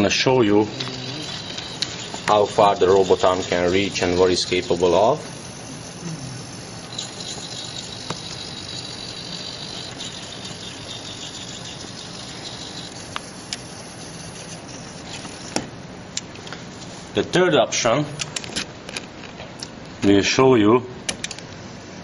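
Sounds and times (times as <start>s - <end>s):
servo motors whirring: 0.0s - 15.8s
high whine: 0.0s - 16.0s.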